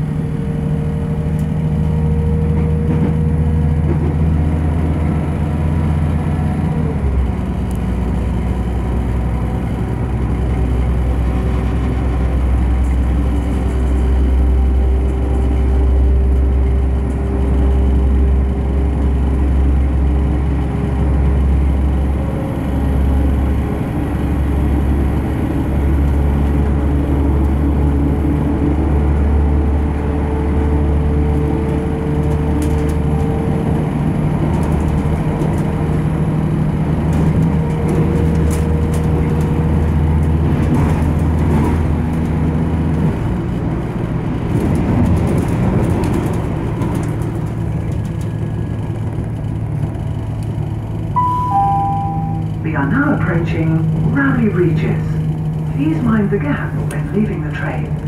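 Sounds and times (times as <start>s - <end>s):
diesel engine drone: 0.0s - 58.0s
transmission whine: 51.1s - 55.0s.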